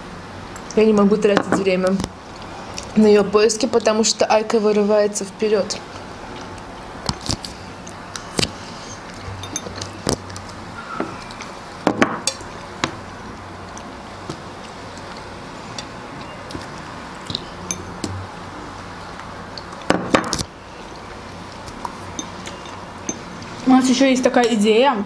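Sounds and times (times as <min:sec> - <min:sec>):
cherries clinking on glass bowl: 0:09.4 - 0:10.0, 0:22.1 - 0:23.4.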